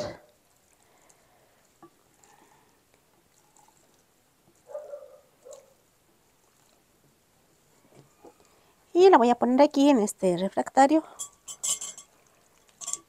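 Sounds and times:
gelatin squelching: 0:00.0 - 0:08.8.

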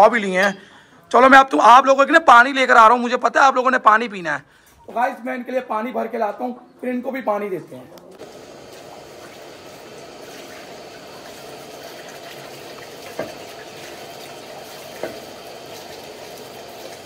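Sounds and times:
tap water splashing into bowl: 0:10.3 - 0:17.0.

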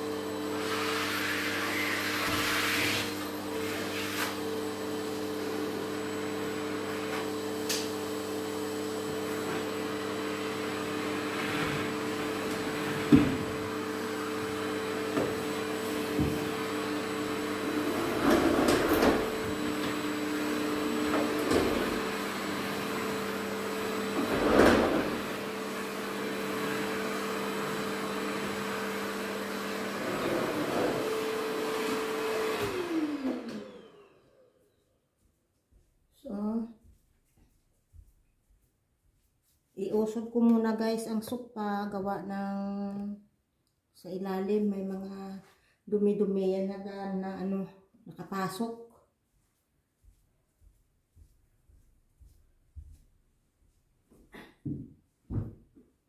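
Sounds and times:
vacuum cleaner running: 0:00.0 - 0:35.3.

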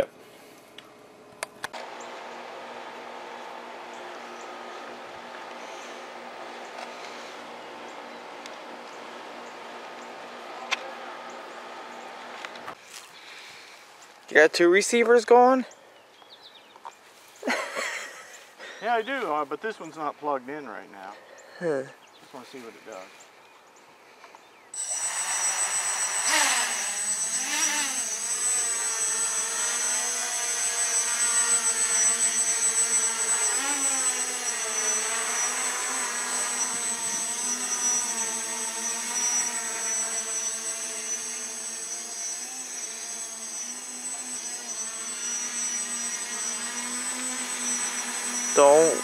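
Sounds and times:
quadcopter motors buzzing: 0:01.7 - 0:12.8, 0:17.4 - 0:19.1, 0:24.8 - 0:49.0
steady high whine: 0:24.8 - 0:49.0.

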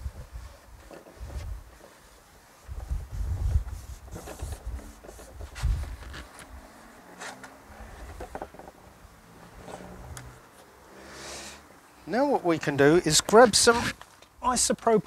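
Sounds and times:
handling bumps and rubbing: 0:00.0 - 0:10.7.

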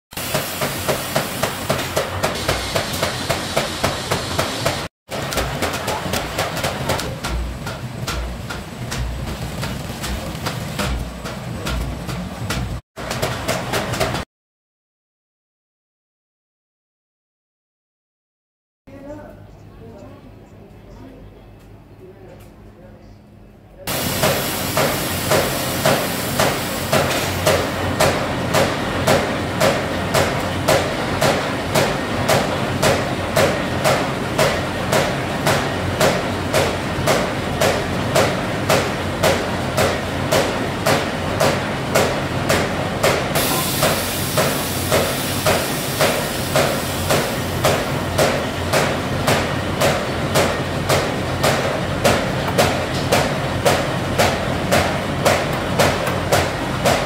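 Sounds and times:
machinery clattering: 0:00.3 - 0:14.2.

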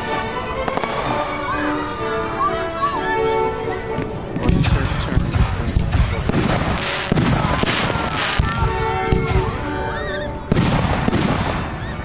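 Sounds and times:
fireworks bangs and crackles: 0:00.0 - 0:02.1, 0:04.0 - 0:12.0.

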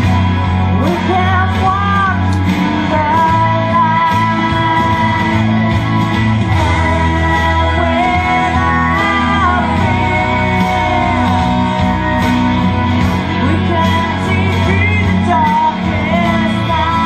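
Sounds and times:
amplified band with bass: 0:00.0 - 0:17.0
woman singing into microphone: 0:00.7 - 0:17.0
backing voices singing: 0:00.8 - 0:17.0.

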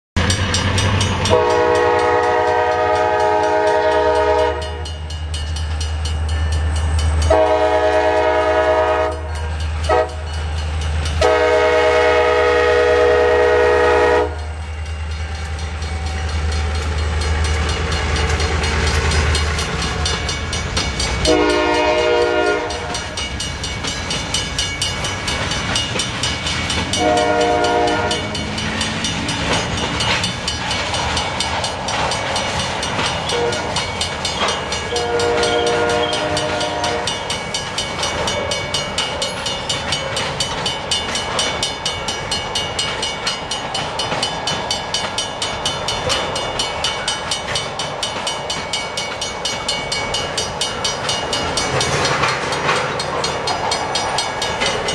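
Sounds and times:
diesel locomotive horn blasts: 0:01.2 - 0:05.0, 0:07.2 - 0:10.4, 0:11.2 - 0:14.6, 0:21.2 - 0:23.2, 0:26.9 - 0:28.4, 0:33.2 - 0:33.8, 0:34.8 - 0:37.3.

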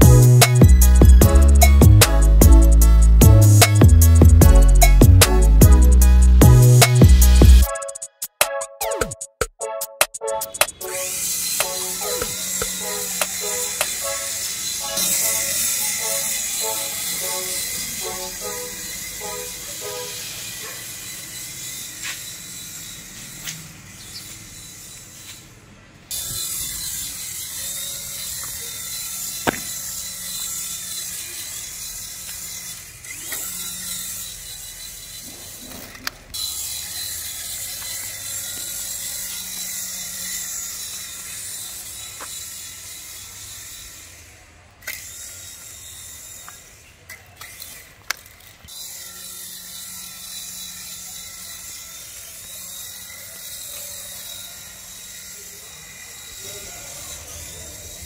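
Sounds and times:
toy helicopter motor whir: 0:00.0 - 0:08.4, 0:10.4 - 0:58.0.

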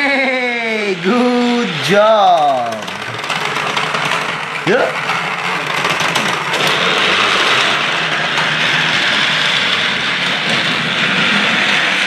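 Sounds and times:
toy train motor whirring: 0:00.0 - 0:12.0.

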